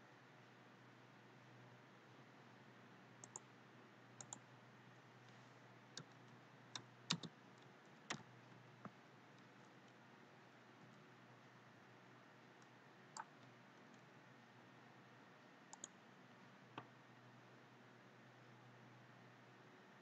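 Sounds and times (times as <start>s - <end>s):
faint low hum: 0.0s - 20.0s
mouse and keyboard clicks: 3.2s - 3.5s, 4.2s - 4.4s, 6.0s - 10.0s, 15.7s - 16.0s.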